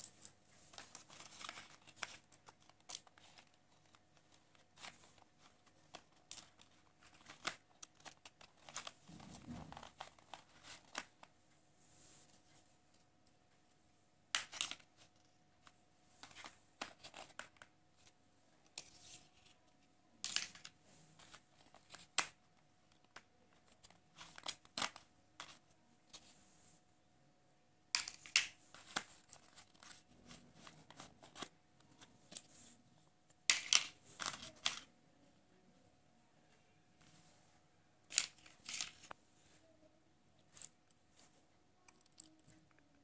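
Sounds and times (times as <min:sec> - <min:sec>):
plastic puzzle pieces clacking: 0:00.0 - 0:11.3, 0:14.3 - 0:19.6, 0:20.2 - 0:26.3, 0:27.9 - 0:32.5, 0:33.4 - 0:34.9, 0:38.0 - 0:39.2, 0:40.4 - 0:40.8
paper rustling: 0:00.2 - 0:11.2, 0:28.2 - 0:32.8.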